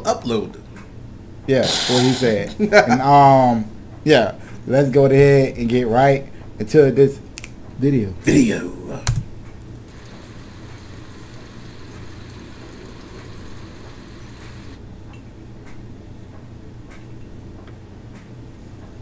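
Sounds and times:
steady low hum: 0:00.0 - 0:19.0
even hiss: 0:01.5 - 0:02.6, 0:09.8 - 0:14.8.

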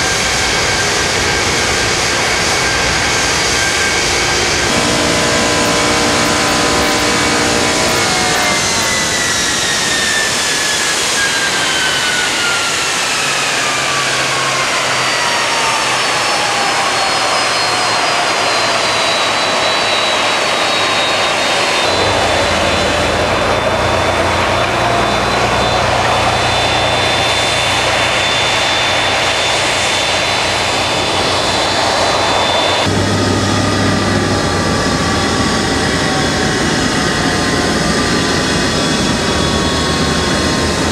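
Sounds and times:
jet engines whining: 0:00.0 - 0:40.9
low hum: 0:04.4 - 0:09.2, 0:21.8 - 0:35.9.

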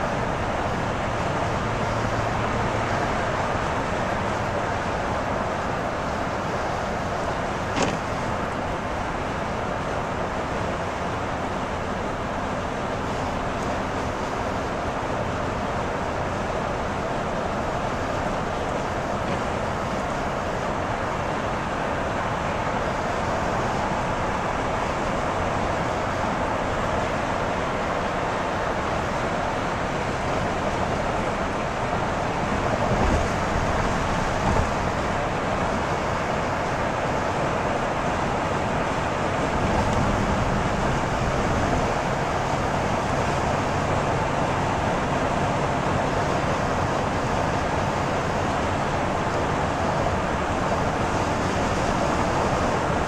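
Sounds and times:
car road noise inside cabin: 0:00.0 - 0:53.0
car bumps: 0:07.6 - 0:08.4.

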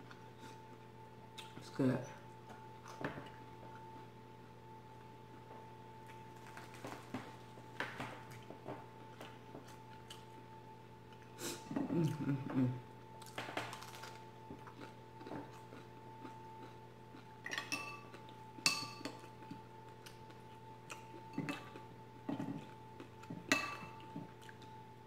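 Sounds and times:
faint high hum: 0:00.0 - 0:25.0
spoon clinking ceramic bowl: 0:17.5 - 0:18.0, 0:18.6 - 0:19.2, 0:23.5 - 0:24.0.

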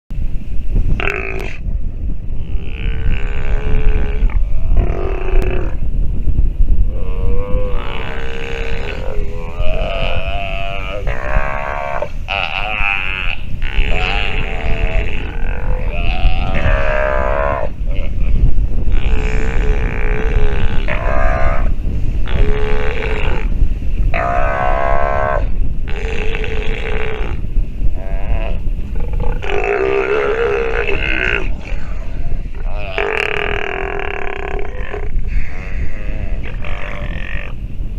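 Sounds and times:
steady low rumble: 0:00.1 - 0:37.9
sea lion pup calling: 0:07.0 - 0:27.4, 0:28.0 - 0:37.6.

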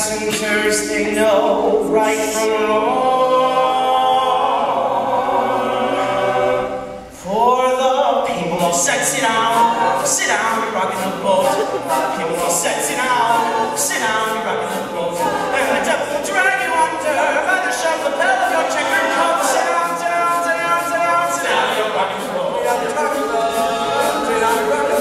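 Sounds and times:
male a cappella group singing: 0:00.0 - 0:25.0
crisp hissy beat strokes: 0:08.4 - 0:25.0.

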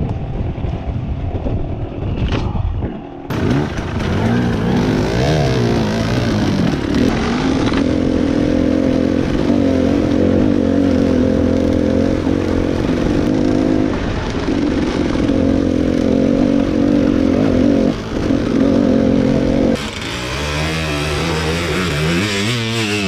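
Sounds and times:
wind noise on microphone: 0:00.0 - 0:19.8
dirt bike engine revving: 0:03.3 - 0:23.0.

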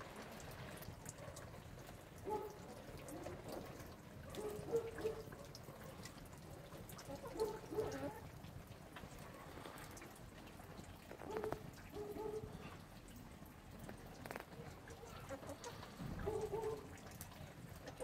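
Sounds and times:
rain dripping and pattering: 0:00.0 - 0:18.0
chickens clucking: 0:14.9 - 0:16.9.

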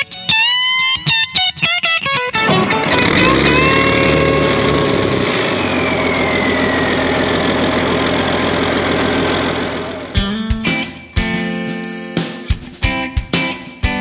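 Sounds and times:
tractor engine running rough: 0:02.4 - 0:10.3
high whine falling in pitch: 0:02.5 - 0:10.1.

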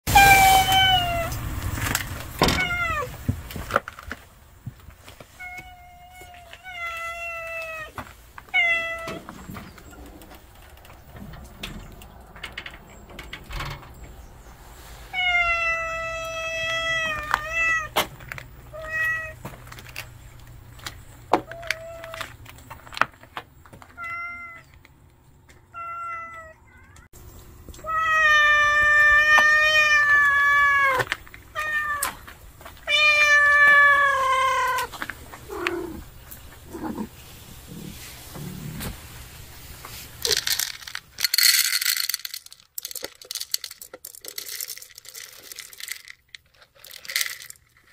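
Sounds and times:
cat meowing: 0:00.1 - 0:01.4, 0:15.2 - 0:18.0.

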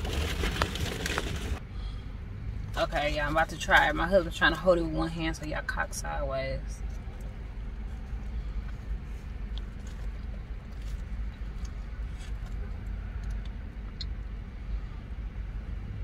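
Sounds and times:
foil wrapper crinkling: 0:00.0 - 0:01.6
car idling: 0:00.0 - 0:16.0.

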